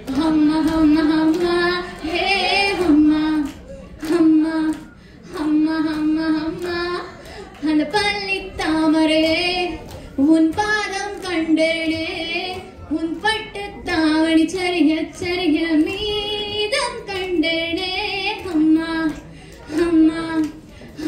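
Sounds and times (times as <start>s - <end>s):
woman singing into a microphone: 0.0s - 21.0s
singer breathing: 19.3s - 19.7s.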